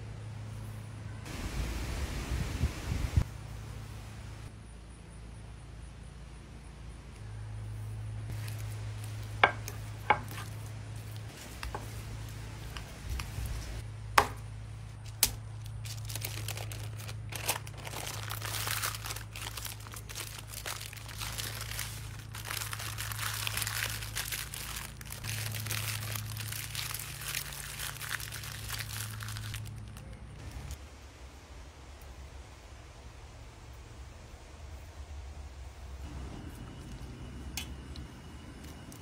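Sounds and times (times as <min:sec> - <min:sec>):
steady low hum: 0:00.0 - 0:23.2, 0:28.6 - 0:39.0
parchment paper crinkling: 0:14.8 - 0:30.8.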